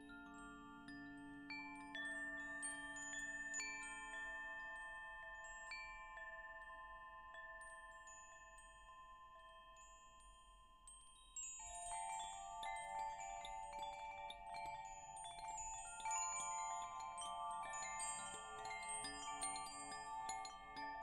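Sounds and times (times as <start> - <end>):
wind chimes ringing: 0.0 - 21.0.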